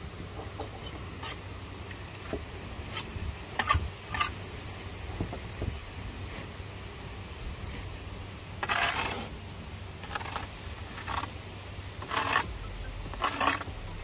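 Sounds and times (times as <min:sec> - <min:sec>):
low steady hum: 0:00.0 - 0:14.0
trowel clinking and scraping bricks: 0:02.9 - 0:04.4, 0:08.6 - 0:09.3, 0:10.0 - 0:11.3, 0:12.0 - 0:14.0.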